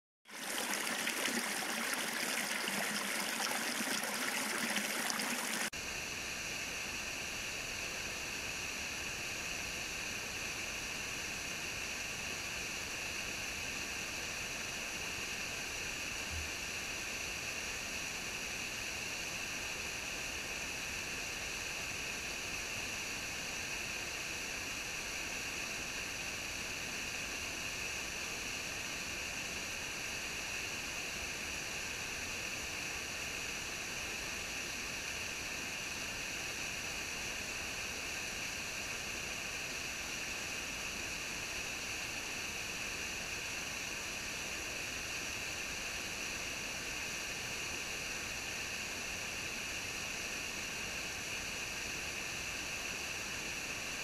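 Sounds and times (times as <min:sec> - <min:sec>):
waterfall rushing over rocks: 0:00.4 - 0:05.7.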